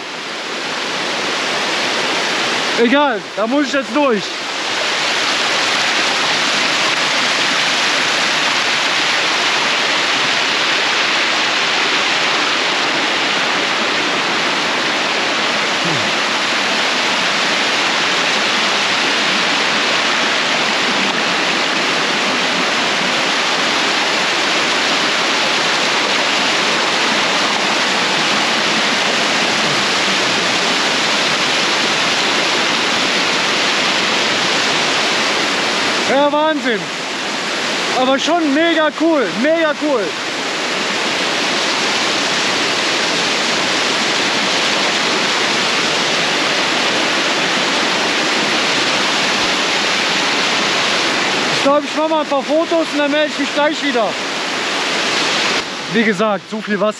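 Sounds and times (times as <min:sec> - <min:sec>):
rush of falling water: 0:00.0 - 0:56.9.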